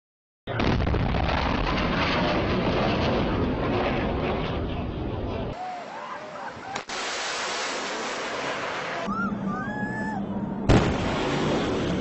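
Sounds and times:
jet aircraft roar: 0:00.5 - 0:12.0
voices of onlookers: 0:05.6 - 0:06.9
sonic boom: 0:10.5 - 0:12.0.

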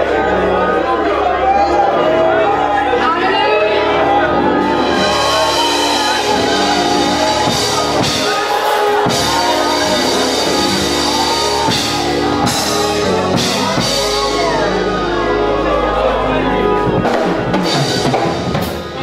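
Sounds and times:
keyboard chords: 0:00.0 - 0:19.0
voices singing and shouting: 0:00.0 - 0:19.0
drums and cymbals: 0:04.7 - 0:14.8, 0:17.0 - 0:19.0.

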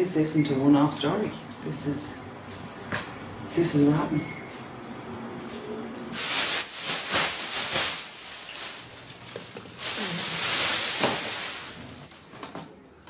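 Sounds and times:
bedding rustling and crumpling: 0:06.2 - 0:12.3.

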